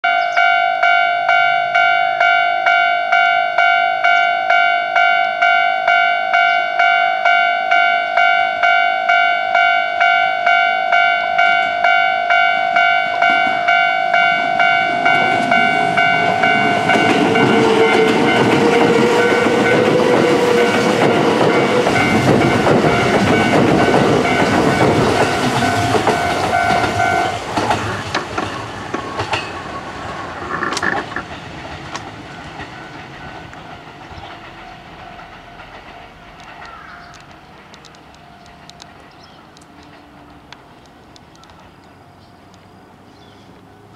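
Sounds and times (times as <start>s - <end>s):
level crossing bell ringing: 0.0s - 27.4s
train wheels clattering: 13.2s - 40.8s.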